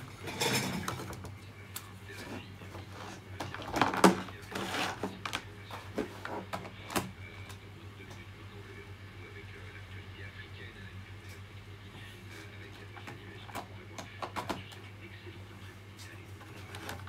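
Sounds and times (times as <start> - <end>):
steady low hum: 0.0 - 17.0
rustling plastic parts: 2.2 - 6.6.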